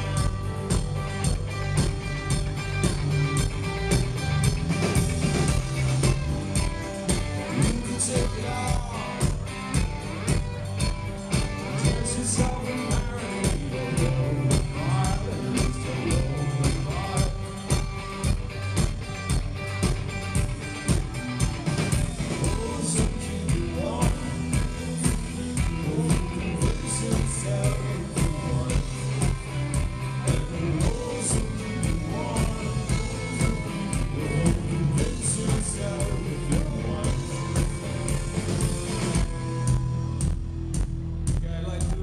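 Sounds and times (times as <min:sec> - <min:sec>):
live rock band playing: 0:00.0 - 0:41.4
drums keeping a steady beat: 0:00.0 - 0:42.0
man singing: 0:07.4 - 0:10.0, 0:11.4 - 0:17.8, 0:22.2 - 0:38.4.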